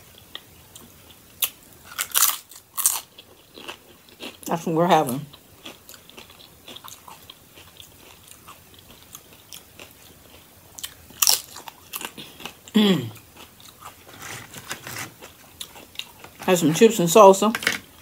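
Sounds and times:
crunching chips: 1.4s - 4.5s, 5.6s - 16.5s.

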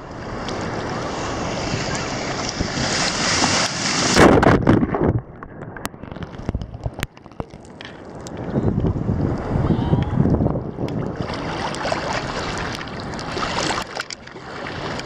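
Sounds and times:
wind noise on microphone: 0.0s - 15.0s
loud water splash: 0.6s - 5.1s
underwater clicks and pops: 4.2s - 9.4s
water sloshing: 10.8s - 15.0s.

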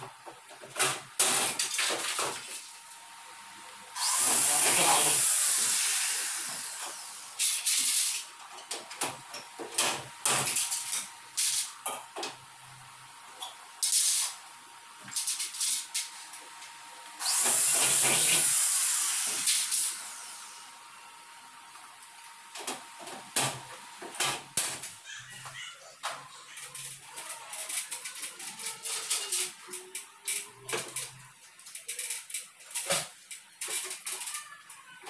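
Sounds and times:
power drill running: 3.9s - 8.2s, 17.2s - 20.8s.

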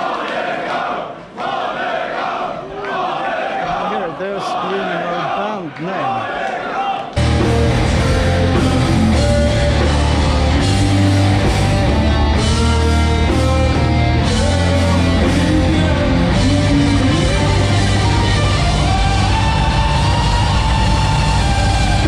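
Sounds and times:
metal band playing loud: 7.2s - 22.0s.

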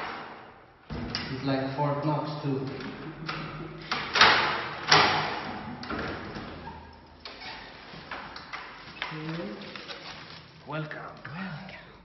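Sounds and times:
door bolt clunking: 2.8s - 6.4s.

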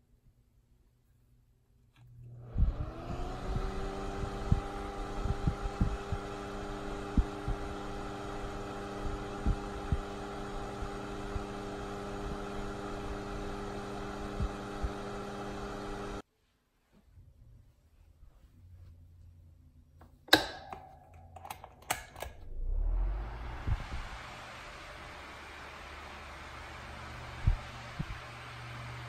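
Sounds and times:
fan motor hum: 2.0s - 16.2s, 20.2s - 29.0s
low airflow thumps on microphone: 3.5s - 6.3s.

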